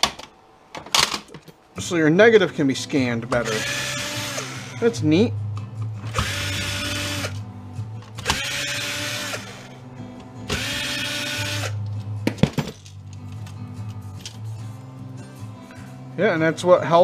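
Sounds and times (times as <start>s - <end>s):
cordless drill motor whine: 3.4s - 4.8s, 6.1s - 7.4s, 8.2s - 9.8s, 10.5s - 11.8s.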